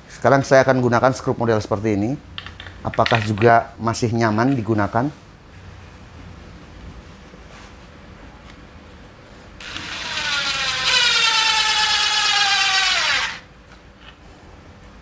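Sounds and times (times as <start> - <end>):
impact driver driving screw: 9.6 - 13.4.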